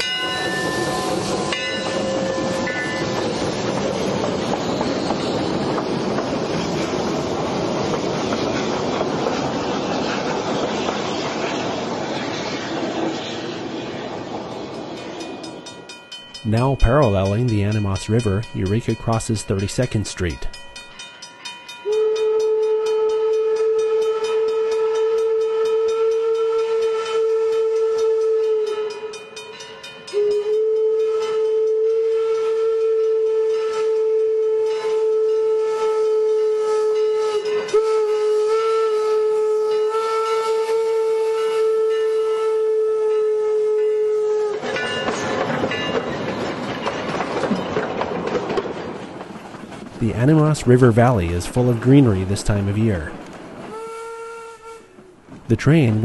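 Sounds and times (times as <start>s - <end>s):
train clattering on rails: 0.0s - 19.6s, 44.4s - 53.8s
steam whistle blasts: 21.8s - 29.4s, 30.1s - 44.7s, 53.7s - 55.0s.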